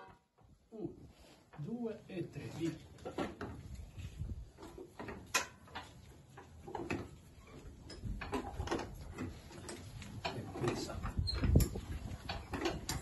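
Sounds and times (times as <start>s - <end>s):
wooden knocks and creaks: 2.9s - 13.0s.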